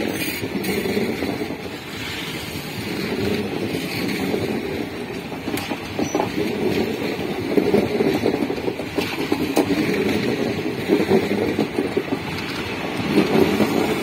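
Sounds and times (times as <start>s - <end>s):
clanks and clicks of wheels: 0.0s - 14.0s
train wheels rumbling on rail: 0.0s - 14.0s.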